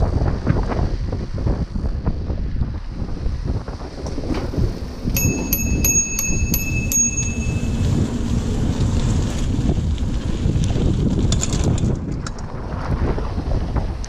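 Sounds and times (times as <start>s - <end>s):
wind noise on microphone: 0.0s - 14.0s
bicycle bell ringing: 5.1s - 8.6s.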